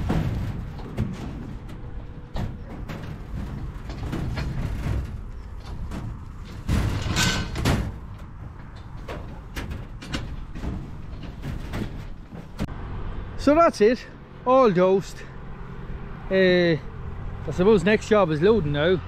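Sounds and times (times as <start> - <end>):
animals scuffling: 0.0 - 12.7
clicks and knocks: 0.0 - 12.7
lambs knocking against metal sheeting: 0.0 - 12.7.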